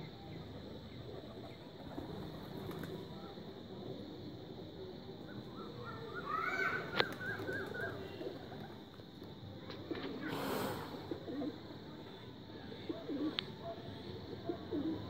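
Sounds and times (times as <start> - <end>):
birds chirping: 0.0 - 9.0
outdoor background hum: 0.0 - 15.0.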